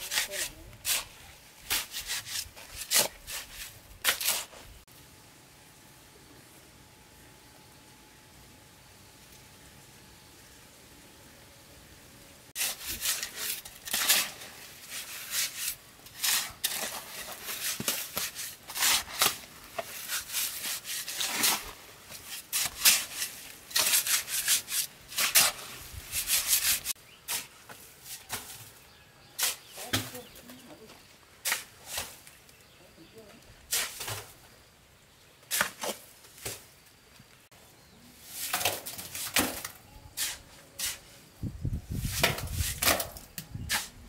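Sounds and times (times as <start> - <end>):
shovel scraping wet cement: 0.0 - 4.8, 12.6 - 28.8, 29.4 - 30.4, 31.4 - 32.4, 33.7 - 34.4, 35.5 - 36.7, 38.2 - 41.1, 41.9 - 44.0.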